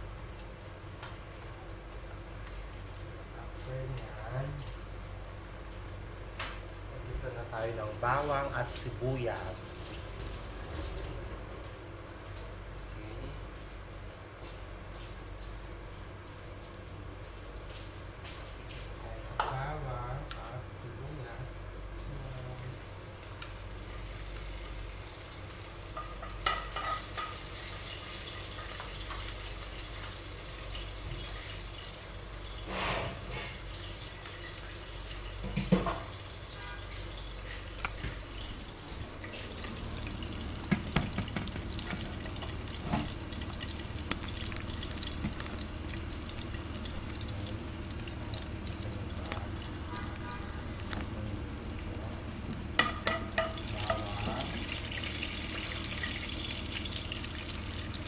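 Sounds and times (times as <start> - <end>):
garlic sizzling in oil: 22.8 - 58.0.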